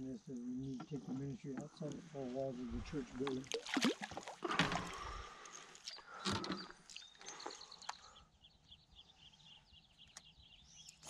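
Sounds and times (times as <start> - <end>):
fish splashing into water: 3.2 - 5.4
bird chirping: 4.9 - 11.0.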